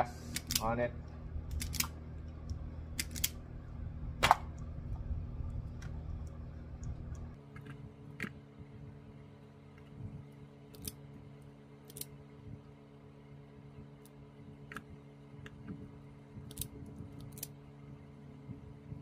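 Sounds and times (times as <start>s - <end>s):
steady low hum: 0.0s - 19.0s
wire stripper clicks: 1.5s - 3.4s.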